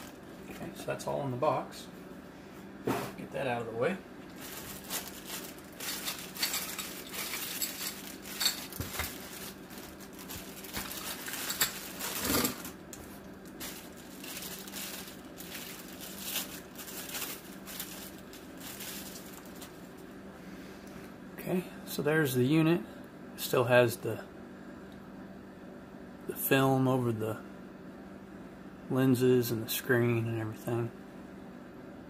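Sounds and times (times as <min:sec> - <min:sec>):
packaging rustling and crinkling: 0:04.3 - 0:20.1.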